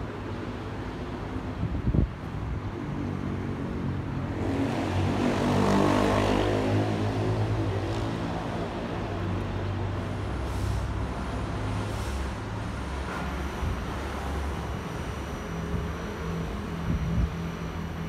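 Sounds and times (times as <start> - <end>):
jet aircraft passing overhead: 3.5 - 9.4.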